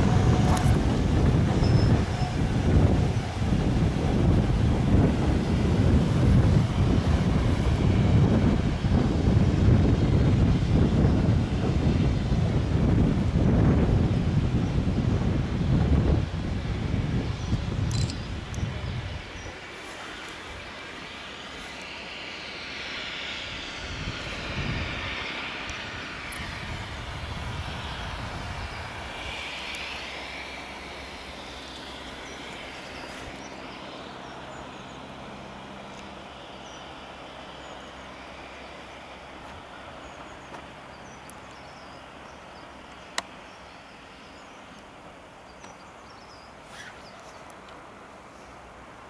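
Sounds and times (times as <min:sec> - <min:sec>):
steam locomotive hauling train: 0:00.0 - 0:46.9
sharp click: 0:17.9 - 0:18.2.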